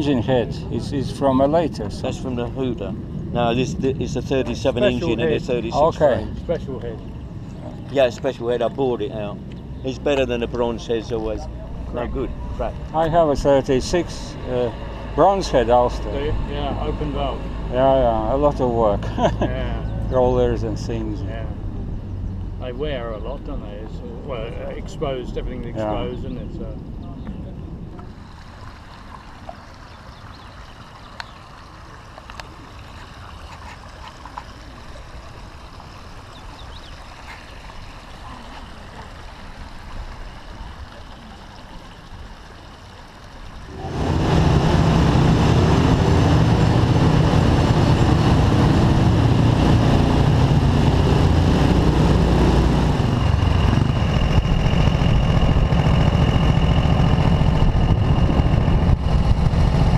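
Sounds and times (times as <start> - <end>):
motorcycle engine: 43.6 - 59.9
wind noise on microphone: 43.6 - 59.9.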